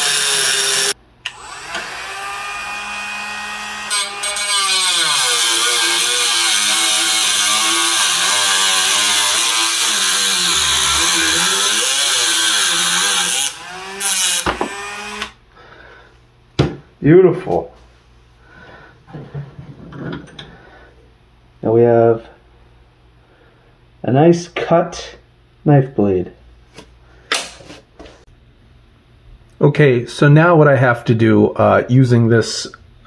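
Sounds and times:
rotary tool grinding metal: 0.0 - 15.4.

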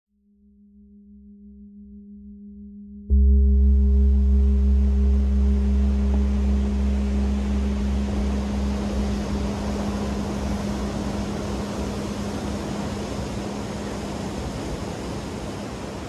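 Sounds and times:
steady low humming tone: 0.8 - 16.0
surf breaking on sand beach: 4.4 - 16.0.

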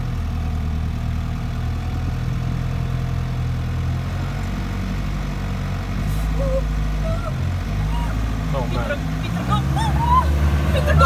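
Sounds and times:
car engine running at low revs: 0.0 - 11.0.

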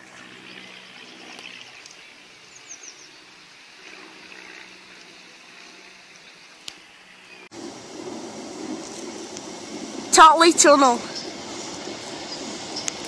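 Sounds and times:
stream rushing: 7.5 - 13.0.

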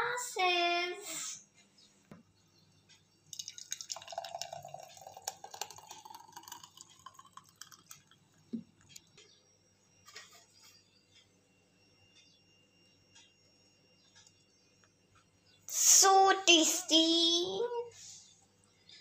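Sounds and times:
smoothie gurgling and dripping: 3.3 - 9.1
rising tone of glass filling: 3.4 - 8.4.

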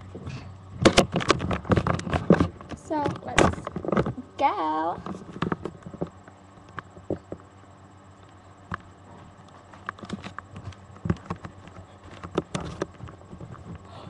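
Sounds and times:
handling knocks and clicks: 0.8 - 4.2, 8.3 - 13.8.

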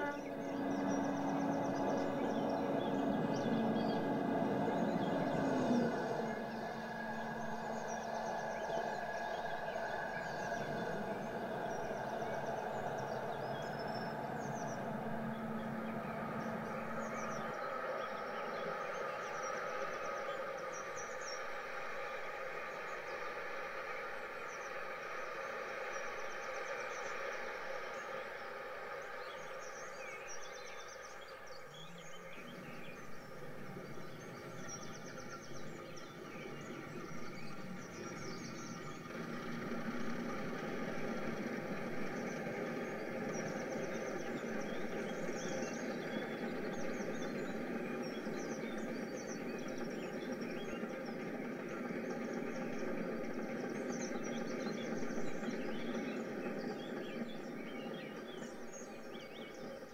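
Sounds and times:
model train motor and wheels rumbling: 0.0 - 59.9.

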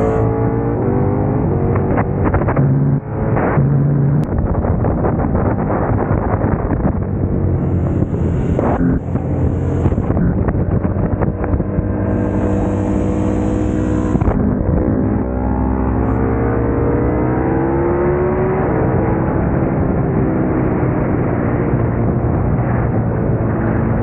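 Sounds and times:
motorcycle engine under load: 6.1 - 16.8.

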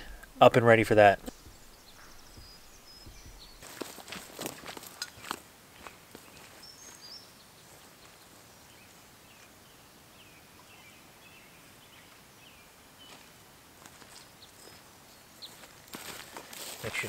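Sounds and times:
quiet forest background: 0.0 - 17.0
footsteps through grass: 1.0 - 8.2, 13.1 - 17.0
birds chirping and whistling: 1.2 - 4.1.

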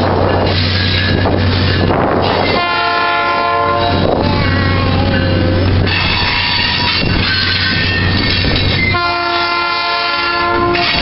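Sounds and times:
diesel locomotive engine running: 0.0 - 11.0
train wheels rolling: 0.0 - 11.0
locomotive air horn blast: 2.6 - 4.0, 9.0 - 11.0.

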